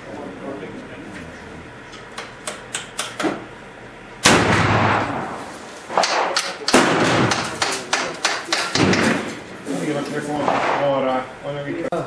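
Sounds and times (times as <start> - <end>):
rifle shot: 4.2 - 9.4, 10.4 - 11.0.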